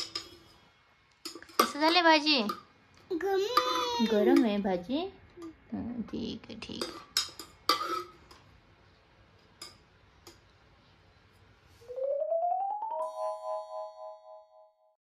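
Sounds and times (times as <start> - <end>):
rising mallet notes into chime chord: 11.9 - 14.7.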